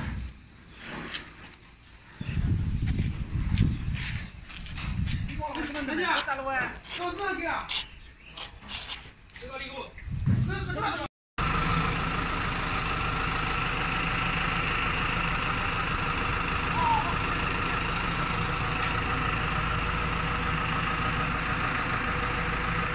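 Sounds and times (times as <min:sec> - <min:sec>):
forklift engine running: 0:11.4 - 0:22.9.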